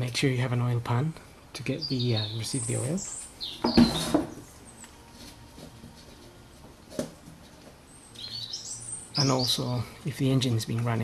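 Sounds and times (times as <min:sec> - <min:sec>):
bird chirping: 0:01.6 - 0:05.1, 0:07.8 - 0:10.8.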